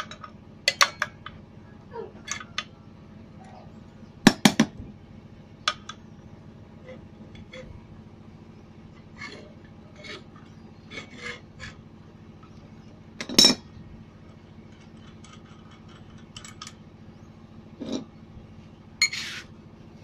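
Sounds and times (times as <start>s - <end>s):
small metal clicks and scrapes: 6.8s - 7.8s, 9.0s - 11.8s, 14.2s - 16.8s.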